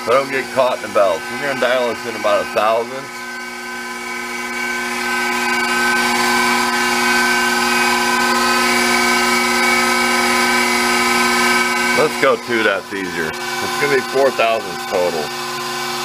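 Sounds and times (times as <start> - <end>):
lathe motor whine: 0.0 - 16.0.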